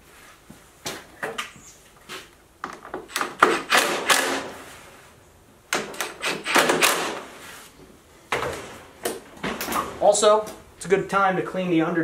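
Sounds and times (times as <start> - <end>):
cordless drill driving bolts: 3.1 - 4.5, 5.7 - 7.3.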